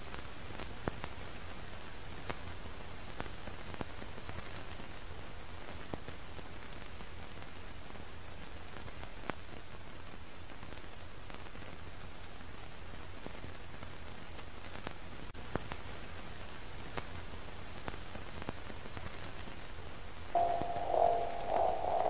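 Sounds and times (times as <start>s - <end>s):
faint crackle: 0.0s - 22.0s
film hiss: 0.0s - 22.0s
low hum: 20.4s - 22.0s.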